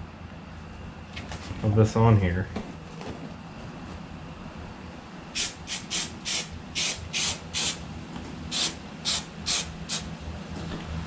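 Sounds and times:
aerosol spray hissing: 0:05.4 - 0:07.8, 0:08.5 - 0:10.1.

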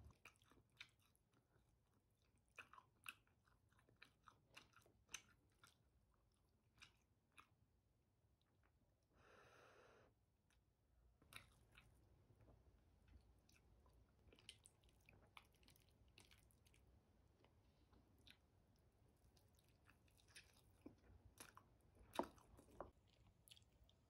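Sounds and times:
chewing noodles: 0:00.0 - 0:07.7, 0:11.2 - 0:24.0.

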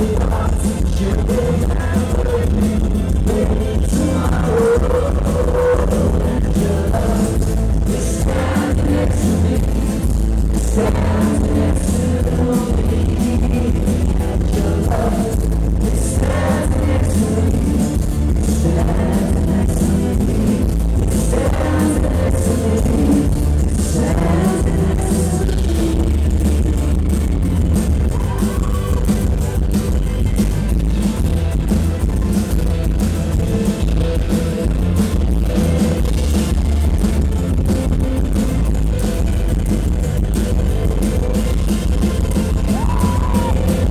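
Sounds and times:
male voice singing: 0:00.0 - 0:29.1, 0:42.6 - 0:43.9
acoustic guitar: 0:00.0 - 0:43.9
boomy bass: 0:00.0 - 0:43.9
drums: 0:00.0 - 0:43.9.

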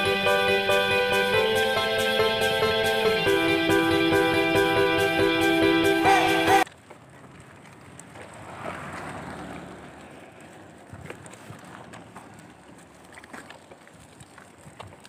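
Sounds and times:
tricycle rolling over rough road: 0:06.6 - 0:15.0.

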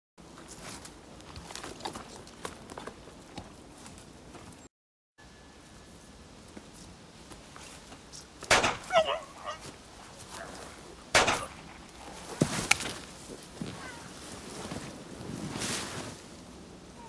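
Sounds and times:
rustling in dirt and leaves: 0:00.2 - 0:04.6, 0:05.4 - 0:17.0
sharp knocks: 0:08.5 - 0:09.0, 0:11.2 - 0:11.8
loud bangs: 0:08.5 - 0:09.1, 0:11.1 - 0:12.1.

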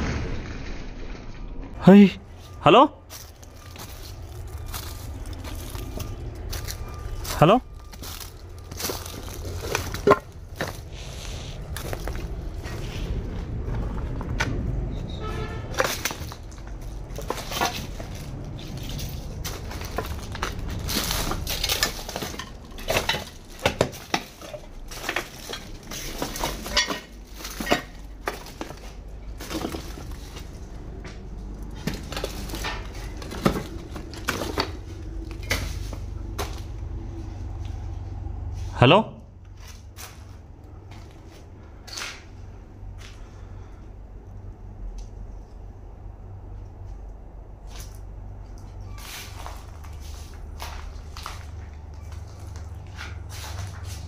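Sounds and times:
steady low rumble: 0:00.0 - 0:48.8
footsteps crunching on rubble: 0:02.2 - 0:14.8, 0:15.6 - 0:38.0, 0:47.6 - 0:54.0.

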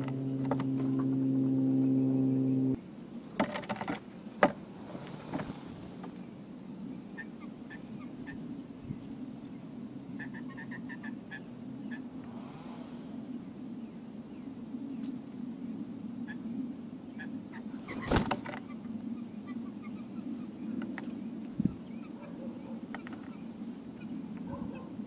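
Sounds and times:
droning tone: 0:00.0 - 0:02.8.

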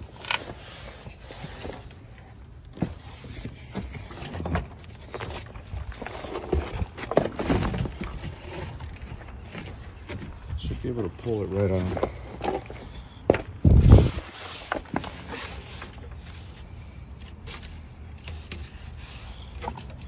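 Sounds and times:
footsteps on gravel: 0:04.1 - 0:15.1.

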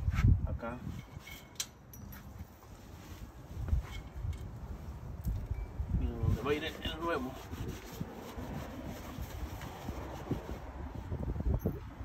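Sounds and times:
cloth rubbing on metal: 0:02.7 - 0:04.2, 0:06.1 - 0:11.4.

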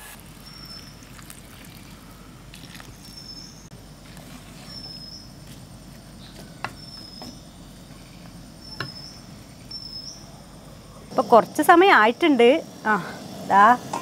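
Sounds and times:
wooden spatula stirring in clay pot: 0:04.0 - 0:09.0.

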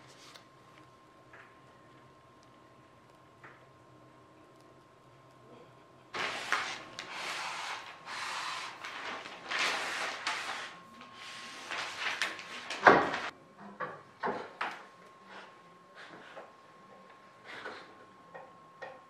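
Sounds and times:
contact paper peeling and ripping: 0:06.2 - 0:13.3.

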